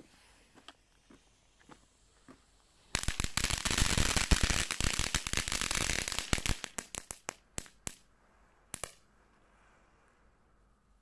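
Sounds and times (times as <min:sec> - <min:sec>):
fountain firework crackling: 0:02.8 - 0:08.1, 0:08.7 - 0:09.0.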